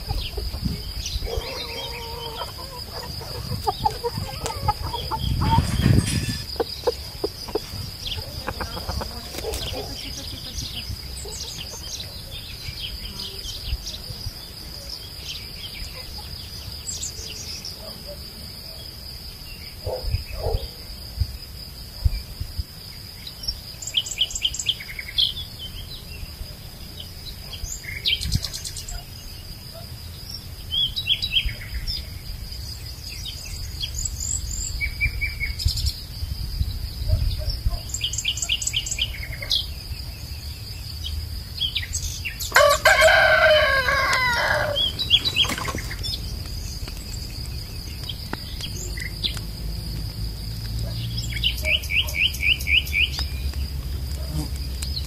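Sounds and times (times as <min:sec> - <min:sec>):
small birds chirping: 0:00.0 - 0:18.9, 0:23.2 - 0:55.0
high insect drone: 0:00.0 - 0:55.0
rooster crowing: 0:01.2 - 0:07.0, 0:42.5 - 0:45.4.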